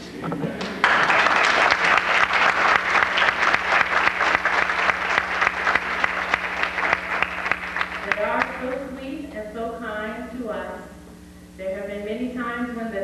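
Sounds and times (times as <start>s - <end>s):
audience applauding: 0.6s - 8.6s.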